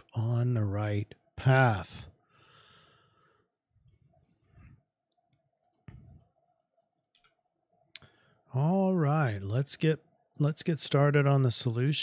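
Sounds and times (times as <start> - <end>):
faint computer mouse clicks: 5.2 - 6.1.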